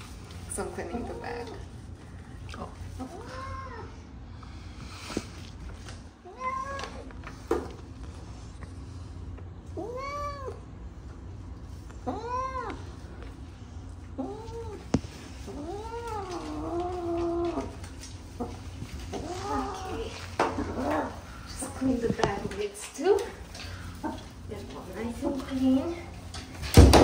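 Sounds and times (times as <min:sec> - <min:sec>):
cat meowing: 0:09.8 - 0:10.6, 0:12.0 - 0:12.9.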